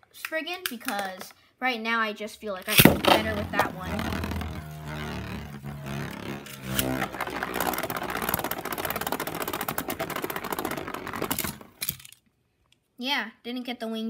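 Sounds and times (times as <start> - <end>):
spinning top rattling in plastic arena: 2.7 - 12.1.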